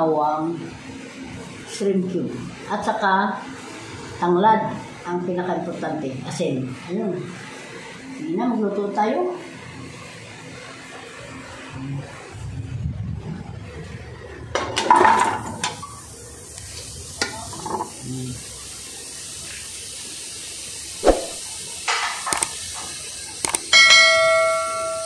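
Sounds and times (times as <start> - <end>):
bell-like chime: 23.8 - 25.0.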